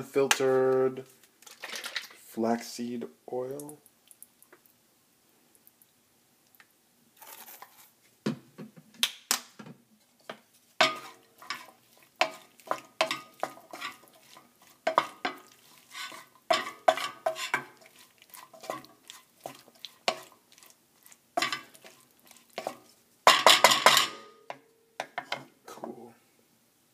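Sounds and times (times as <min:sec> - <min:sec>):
utensil scraping a skillet: 0:10.0 - 0:25.6.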